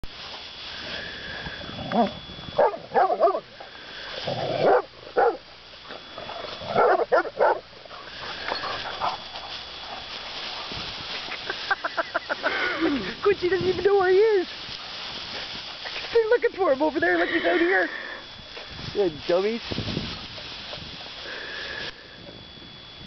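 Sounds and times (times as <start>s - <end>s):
dogs barking: 2.6s - 3.5s, 4.4s - 10.1s.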